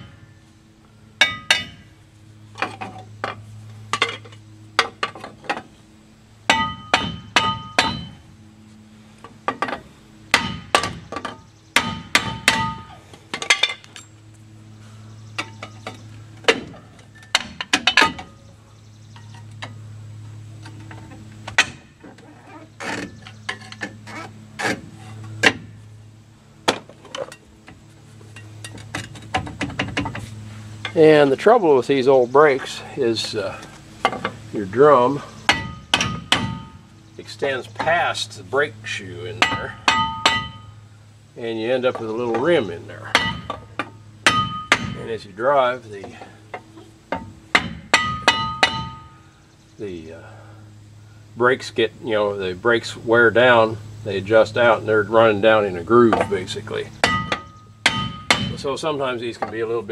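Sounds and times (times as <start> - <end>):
hammer striking metal brake drum: 6.5 - 8.2, 35.5 - 36.8, 39.4 - 40.8, 43.1 - 43.6, 44.3 - 45.1, 47.2 - 49.2, 57.0 - 58.6.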